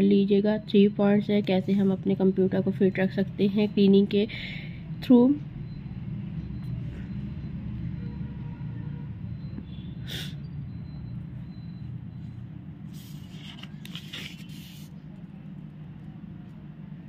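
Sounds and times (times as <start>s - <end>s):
paper page rustling: 12.9s - 15.0s.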